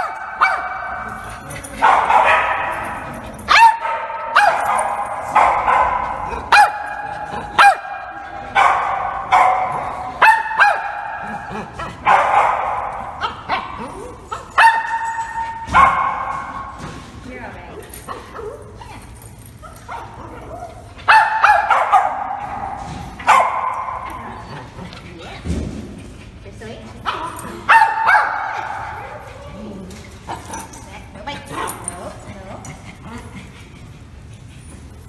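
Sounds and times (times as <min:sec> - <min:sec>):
dog barking: 0:00.0 - 0:01.1, 0:01.8 - 0:02.9, 0:03.5 - 0:13.8, 0:14.6 - 0:16.5, 0:21.1 - 0:24.2, 0:27.1 - 0:29.2.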